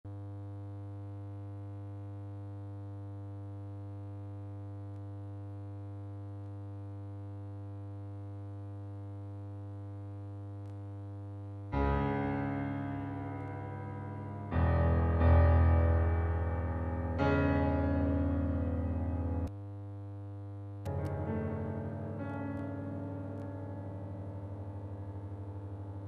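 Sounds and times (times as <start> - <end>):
low electronic drone: 11.7 - 19.5, 20.9 - 26.0.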